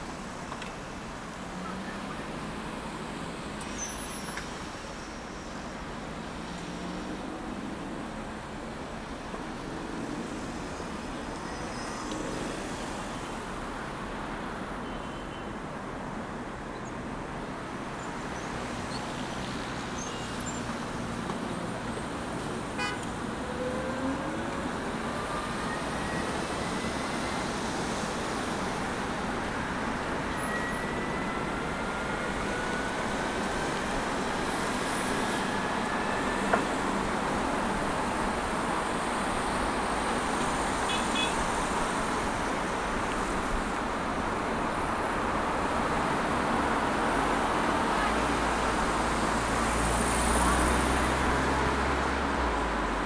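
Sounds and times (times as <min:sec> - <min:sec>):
passing motor vehicles: 0:16.9 - 0:53.0.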